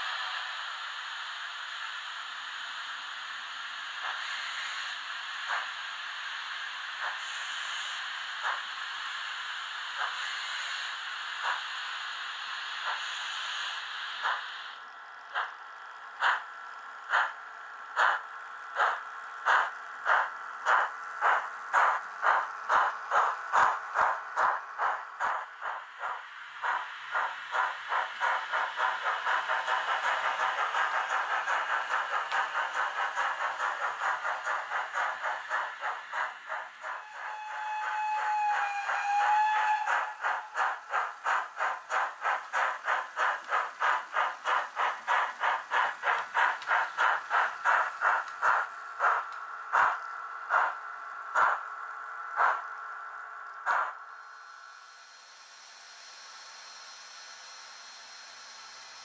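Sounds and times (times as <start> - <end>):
model steam locomotive chuffs: 0.0 - 59.0
steam whistle: 36.9 - 40.6.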